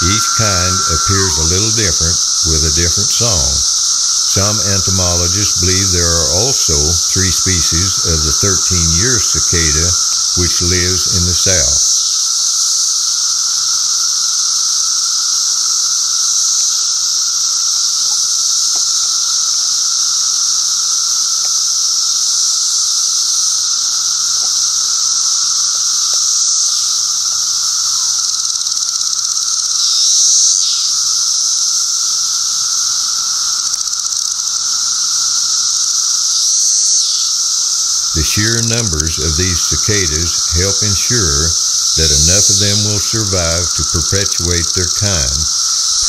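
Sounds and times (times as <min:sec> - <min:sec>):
cicadas chorus buzzing: 0:00.0 - 0:01.1, 0:15.7 - 0:38.1.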